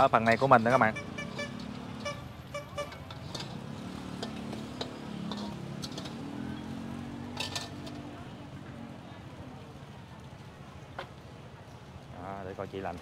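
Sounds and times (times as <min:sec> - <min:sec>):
cooking utensils clicking and tapping: 0:00.0 - 0:08.2
street noise hum: 0:00.0 - 0:13.0.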